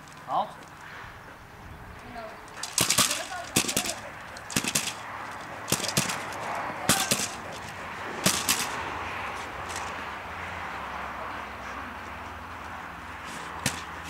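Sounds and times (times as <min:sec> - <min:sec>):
stick cracks: 0:02.5 - 0:08.8.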